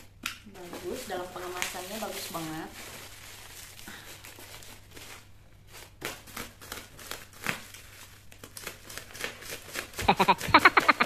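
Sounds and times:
plastic packaging crinkling: 0:00.0 - 0:11.0.

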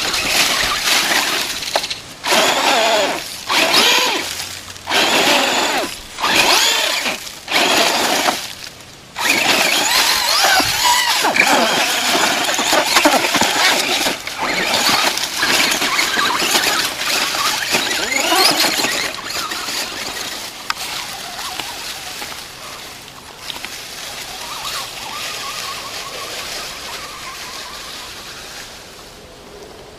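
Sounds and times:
electric motor whining: 0:00.0 - 0:22.8
tyres rattling over rocks and leaves: 0:00.0 - 0:29.2.

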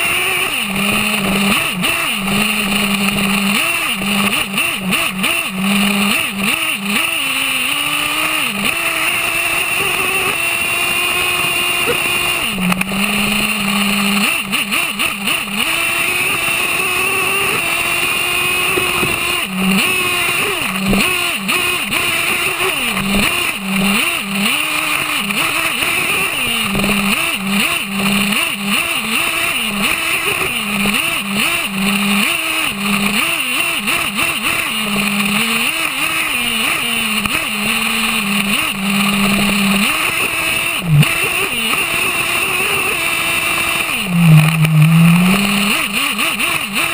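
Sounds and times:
rc truck engine revving: 0:00.0 - 0:46.9.

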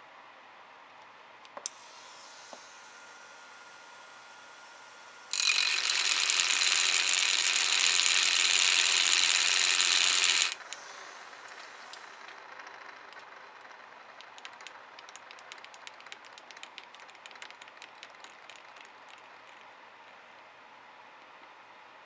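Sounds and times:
plastic gears whirring: 0:05.3 - 0:20.3
faint rattle: 0:05.3 - 0:20.5.

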